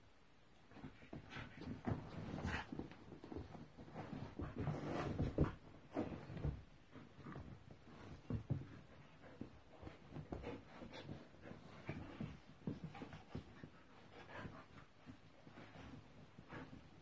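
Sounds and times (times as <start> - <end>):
rustling fabric rug: 0.4 - 17.0
paw thumps on carpet: 0.7 - 17.0.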